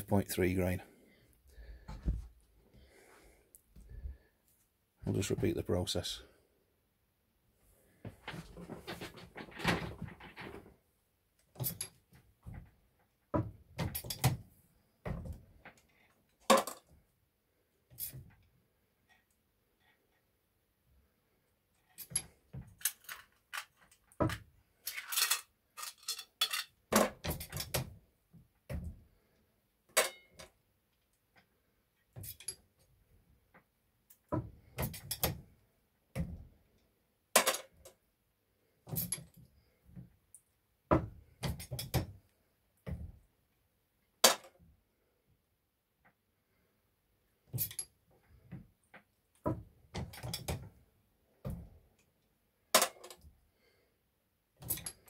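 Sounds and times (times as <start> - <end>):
swage press metal clicks and knocks: 13.4 - 14.4, 22.0 - 27.9, 34.3 - 35.5, 40.9 - 42.2, 49.3 - 50.7.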